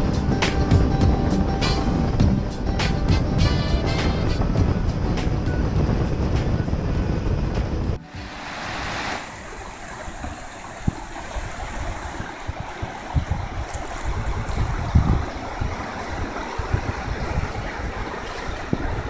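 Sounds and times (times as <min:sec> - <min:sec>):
wind rumble on microphone: 0:00.0 - 0:19.0
creek water rushing: 0:08.0 - 0:19.0.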